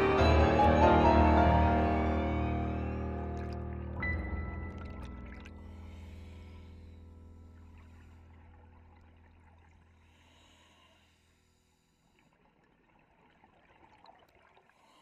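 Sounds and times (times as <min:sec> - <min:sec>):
low music notes: 0:00.0 - 0:06.6.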